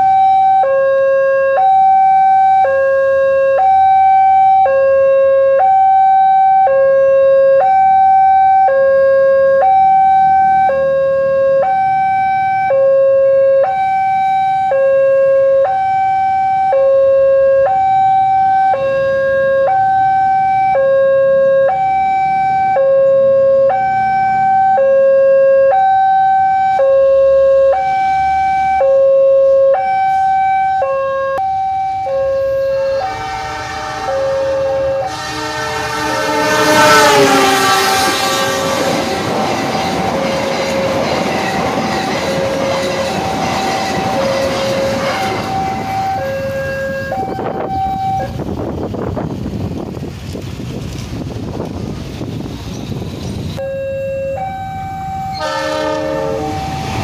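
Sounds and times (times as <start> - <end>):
level crossing two-tone alarm: 0.0 - 48.4, 53.6 - 57.0.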